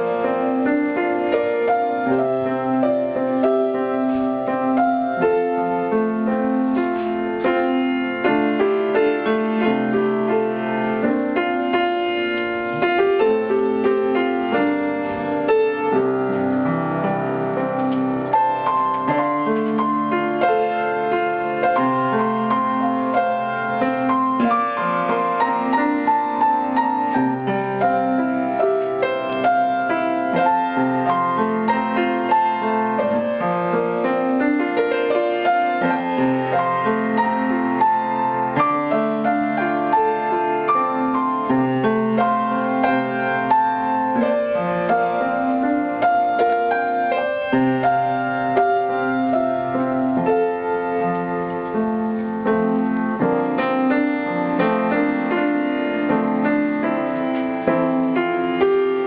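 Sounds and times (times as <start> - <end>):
solo piano melody: 0.0 - 59.0.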